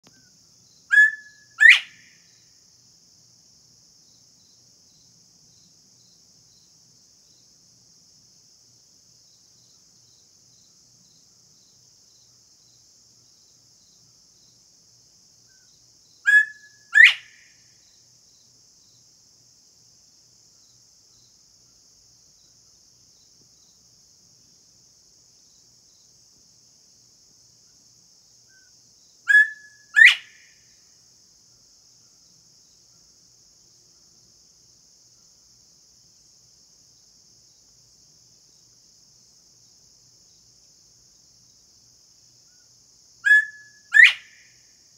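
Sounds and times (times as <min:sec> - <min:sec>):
bird two-note whistle: 0:00.9 - 0:01.9.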